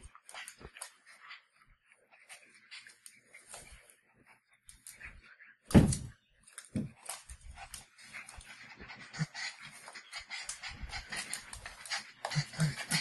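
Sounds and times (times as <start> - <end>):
dogs panting and snuffling: 0.0 - 13.0
loud thump: 5.7 - 6.1
dogs growling: 7.5 - 13.0.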